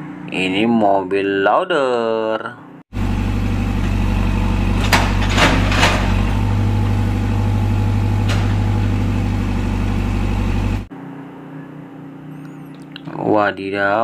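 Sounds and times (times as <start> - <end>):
diesel engine droning: 2.9 - 10.9.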